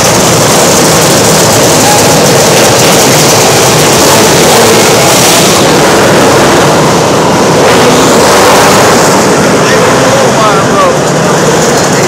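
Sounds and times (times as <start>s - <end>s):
karts racing past: 0.0s - 12.0s.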